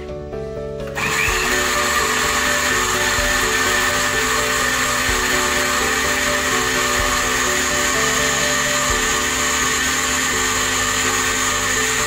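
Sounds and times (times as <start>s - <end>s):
background music: 0.0s - 12.0s
blender motor whine: 0.9s - 12.0s.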